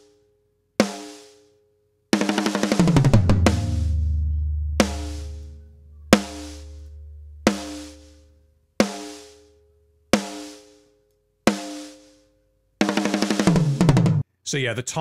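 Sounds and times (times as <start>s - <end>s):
fast tom fill: 2.2s - 8.2s, 12.8s - 14.2s
ringing drum hits: 2.8s - 8.2s.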